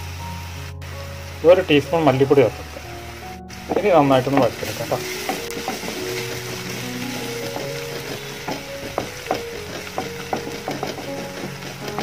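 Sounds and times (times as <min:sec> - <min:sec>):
onions sizzling in hot oil: 0:00.0 - 0:12.0
soft background music: 0:00.0 - 0:12.0
spatula scraping pan: 0:03.7 - 0:12.0.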